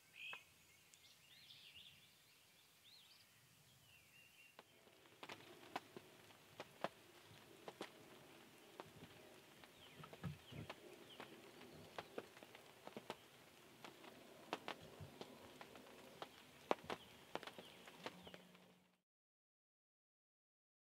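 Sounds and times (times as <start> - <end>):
small birds chirping: 0.0 - 19.0
sharp ticks and clicks: 4.6 - 18.8.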